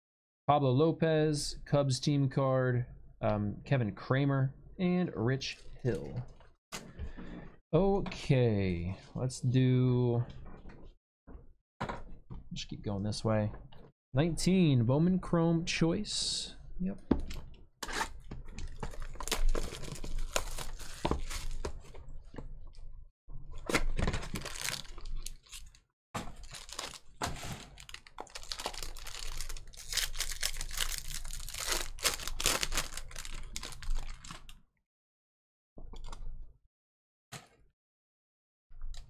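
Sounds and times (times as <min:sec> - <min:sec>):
plastic wrapper tearing and crinkling: 0:17.9 - 0:21.7, 0:23.7 - 0:34.5.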